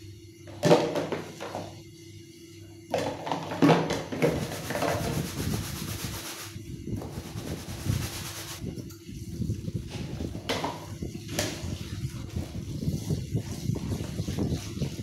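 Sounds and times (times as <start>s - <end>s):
sponge scrubbing plastic dish: 3.4s - 8.6s, 11.3s - 15.0s.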